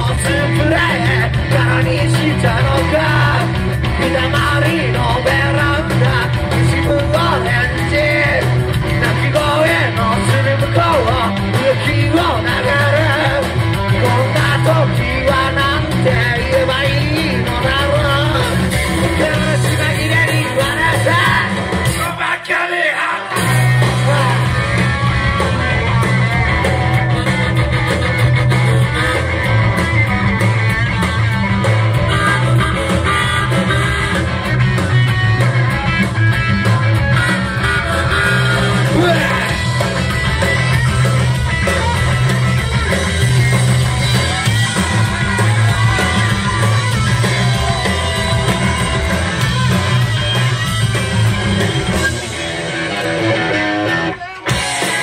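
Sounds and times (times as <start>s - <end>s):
person singing: 0.0s - 27.4s
live rock band playing: 0.0s - 55.0s.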